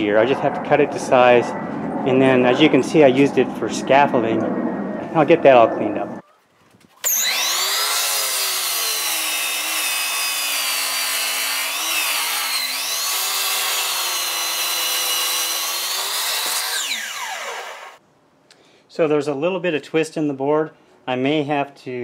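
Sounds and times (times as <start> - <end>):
miter saw whining: 7.0 - 18.0
saw blade crosscutting board: 7.0 - 18.0.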